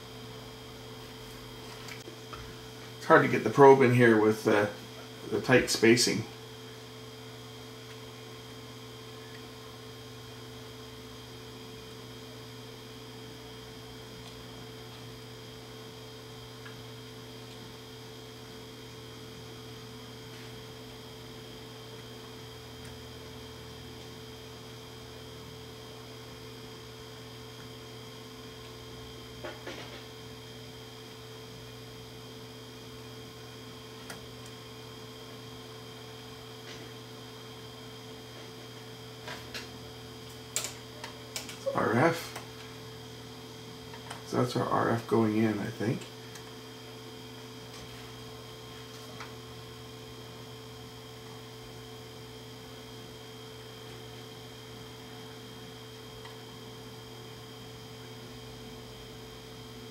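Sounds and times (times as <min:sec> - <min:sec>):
electrical mains hum: 0:00.0 - 0:59.9
thin high whine: 0:29.4 - 0:59.2.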